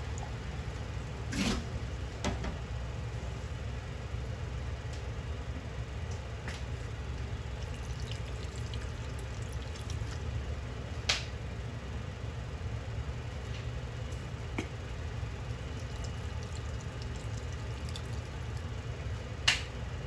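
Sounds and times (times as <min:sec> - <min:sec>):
steady low hum: 0:00.0 - 0:20.0
liquid pouring into pan: 0:07.5 - 0:10.3, 0:15.6 - 0:18.7.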